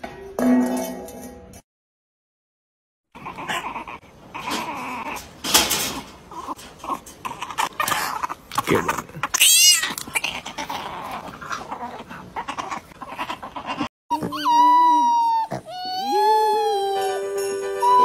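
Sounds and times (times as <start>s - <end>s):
puppy whimpering and squealing: 3.2s - 5.3s, 9.2s - 18.0s
puppy howling: 9.3s - 18.0s.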